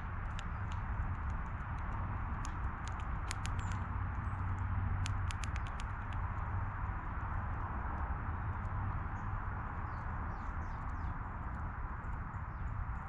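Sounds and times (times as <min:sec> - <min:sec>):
seeds being pecked and cracked: 0:00.3 - 0:03.8.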